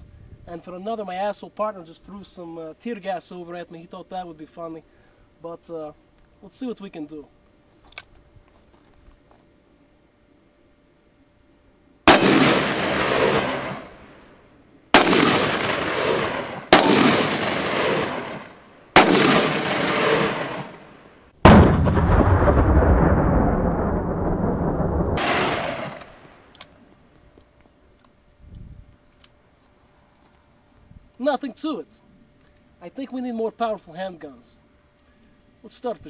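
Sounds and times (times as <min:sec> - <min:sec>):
revolver gunshots with echo: 0:12.1 - 0:14.2, 0:14.9 - 0:23.2, 0:25.2 - 0:26.2.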